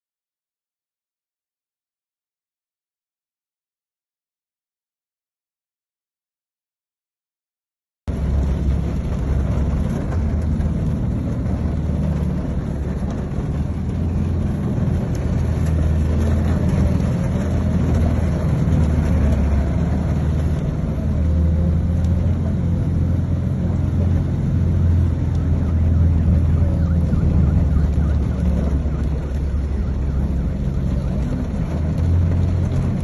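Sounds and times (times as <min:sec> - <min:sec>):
low engine rumble: 0:08.1 - 0:33.0
water rushing and splashing: 0:23.0 - 0:33.0.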